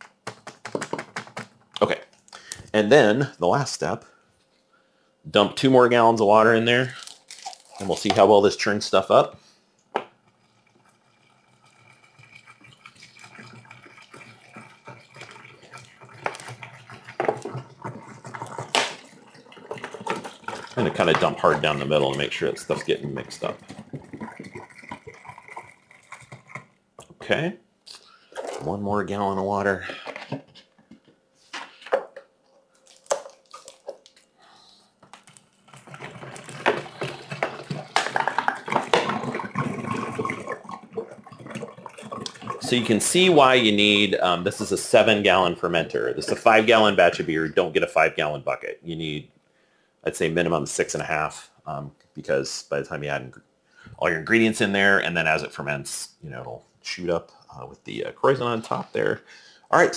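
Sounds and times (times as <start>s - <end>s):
jug glugging: 10.2s - 27.4s, 35.7s - 47.7s
water pouring and splashing: 10.3s - 26.7s, 35.4s - 47.2s.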